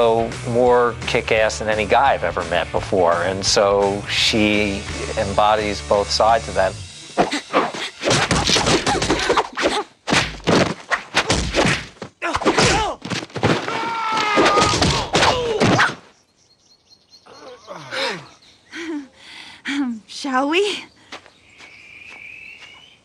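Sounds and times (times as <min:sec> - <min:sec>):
cartoon punches and thuds: 0:07.2 - 0:16.0
grunts and yells: 0:13.7 - 0:15.8, 0:17.2 - 0:18.4.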